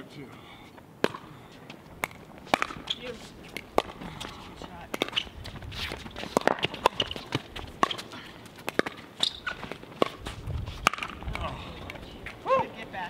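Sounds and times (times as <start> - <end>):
footsteps on hard court: 3.4 - 10.8.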